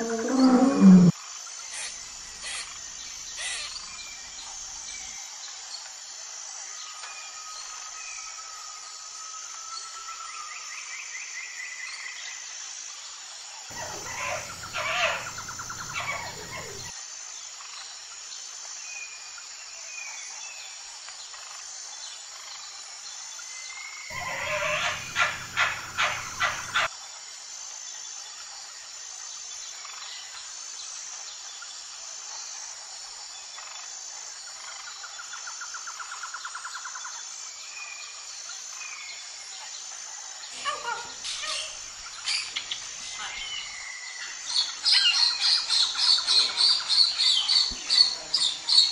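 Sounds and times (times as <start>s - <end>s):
sharp repeated bird calls: 0.0s - 1.1s, 13.7s - 16.9s, 24.1s - 26.9s
high-pitched insect chorus: 0.0s - 48.9s.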